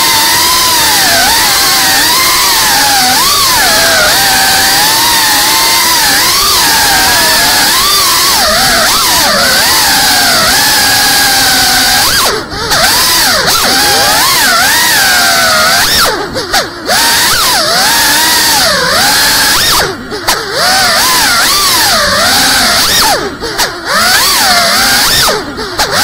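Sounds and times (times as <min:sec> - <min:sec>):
quadcopter motors whining: 0:00.0 - 0:26.0.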